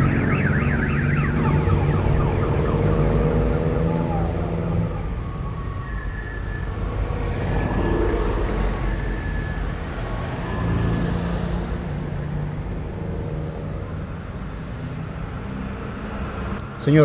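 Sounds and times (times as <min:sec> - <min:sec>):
car engine and road rumble: 0:00.0 - 0:17.0
city traffic noise: 0:00.0 - 0:17.0.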